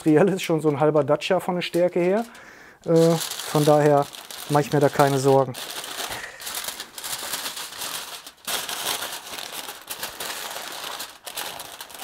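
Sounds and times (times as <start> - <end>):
aluminium foil crinkling: 0.0 - 12.0.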